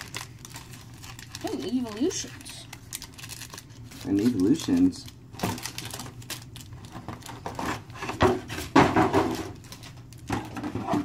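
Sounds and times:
trading cards being handled: 0:00.0 - 0:07.4.

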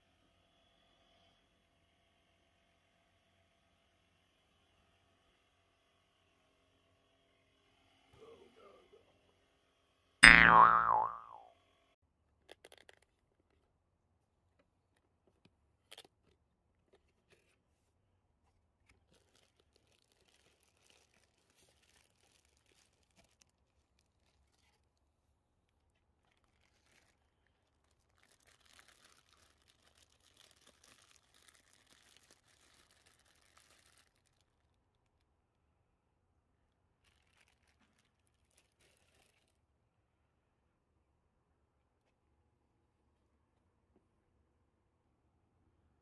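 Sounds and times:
plastic bag crinkling: 0:19.0 - 0:24.9, 0:26.2 - 0:34.6, 0:37.0 - 0:39.6.

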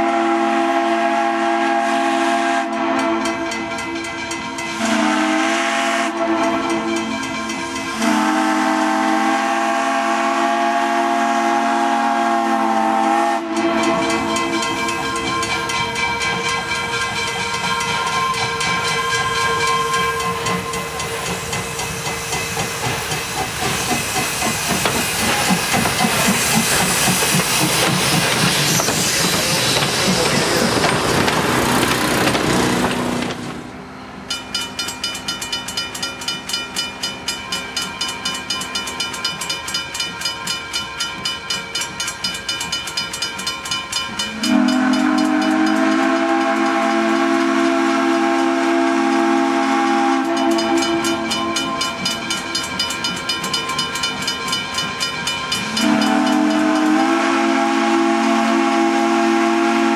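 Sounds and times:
steam whistle blast: 0:00.0 - 0:03.5, 0:04.8 - 0:07.1, 0:08.0 - 0:14.6, 0:17.9 - 0:21.5, 0:44.3 - 0:52.2, 0:55.6 - 0:59.9
locomotive steam hiss: 0:12.6 - 0:33.7
bell ringing: 0:13.8 - 0:22.7, 0:50.4 - 0:56.6.

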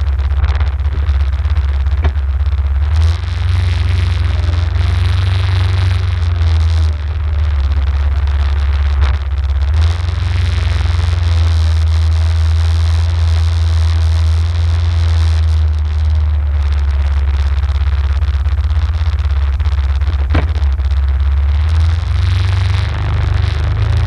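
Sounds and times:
atv engine idling: 0:00.0 - 0:11.6
noisy hiss: 0:00.0 - 0:24.0.

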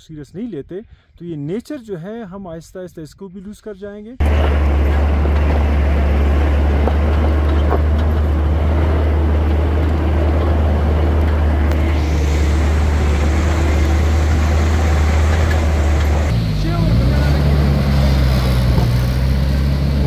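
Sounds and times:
engine droning: 0:04.2 - 0:20.0
rough road rumble: 0:04.2 - 0:20.0.

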